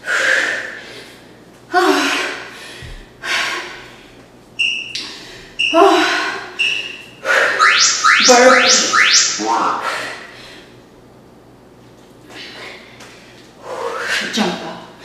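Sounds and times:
woman breathing hard: 0.0s - 4.2s, 12.3s - 14.3s.

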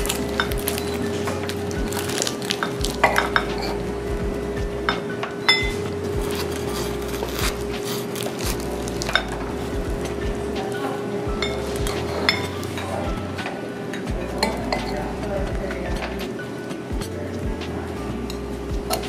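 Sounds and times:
steady hum: 0.0s - 19.0s
cutlery scraping on plate: 4.9s - 10.7s.

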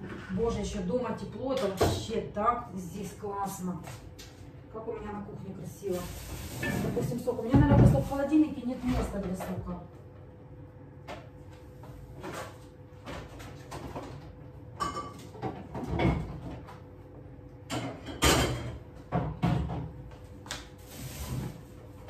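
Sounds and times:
items knocking and clattering: 6.6s - 8.2s, 12.2s - 16.8s, 17.7s - 20.0s.

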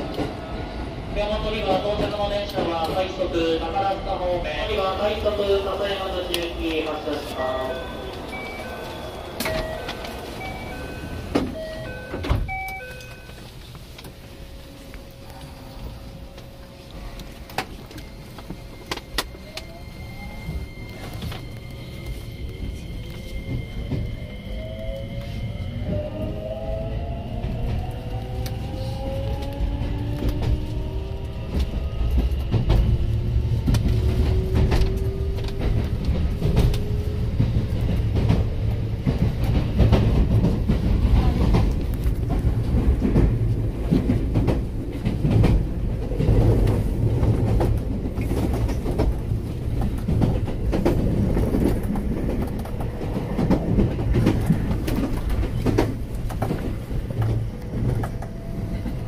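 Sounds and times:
train wheels clacking over rails: 27.4s - 59.0s.

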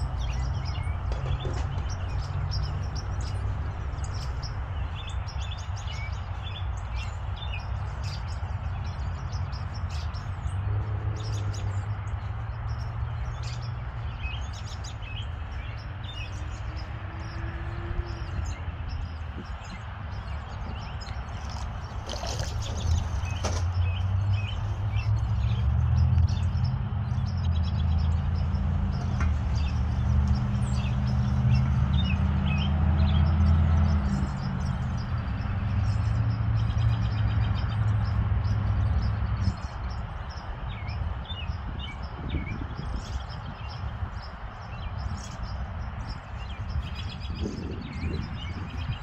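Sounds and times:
birds chirping: 0.0s - 49.0s.

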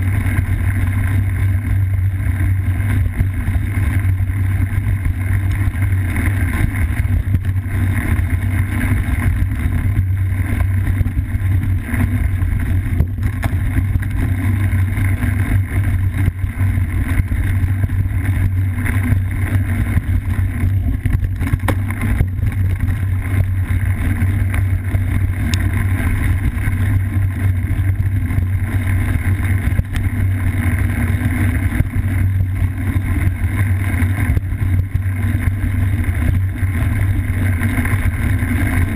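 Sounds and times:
muffled tyre and frame rumble: 0.0s - 38.9s
wind: 0.0s - 38.9s
bike knocking over bumps: 21.0s - 22.9s.

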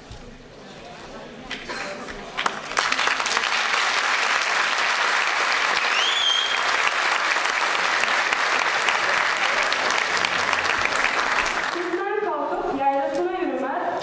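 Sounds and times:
audience applauding: 2.3s - 12.0s
rising whistle: 5.8s - 6.8s.

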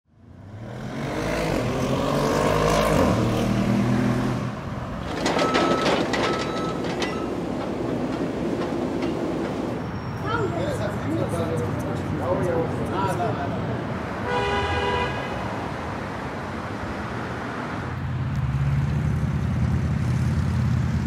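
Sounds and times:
large vehicle engine rumbling: 3.3s - 14.0s
knocks and clatter: 5.0s - 9.8s.

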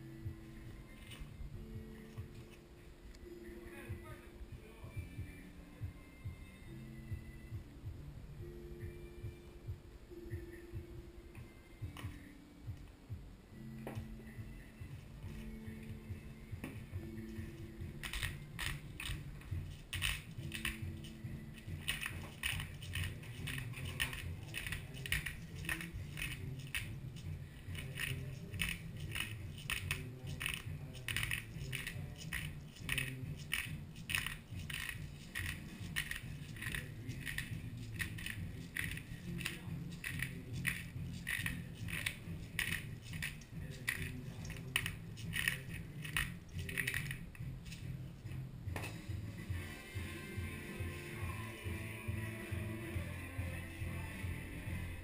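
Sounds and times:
spice grinder clicking: 27.7s - 47.2s.

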